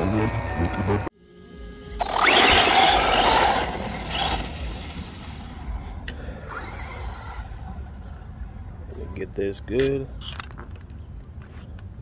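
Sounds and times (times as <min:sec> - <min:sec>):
rc car motor and tyre noise: 0:00.0 - 0:07.8.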